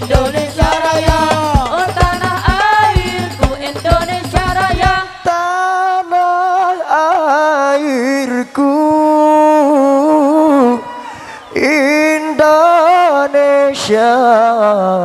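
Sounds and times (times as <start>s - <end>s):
frame drums beating: 0.0s - 5.1s
person singing long ornamented notes: 0.0s - 15.0s.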